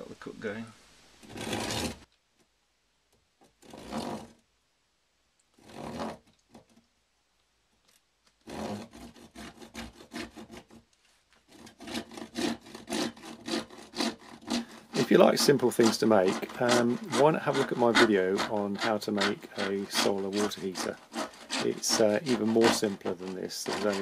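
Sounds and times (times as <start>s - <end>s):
hand saw cutting plastic pipe: 1.2s - 2.0s, 3.6s - 4.4s, 5.6s - 6.6s, 8.4s - 24.0s.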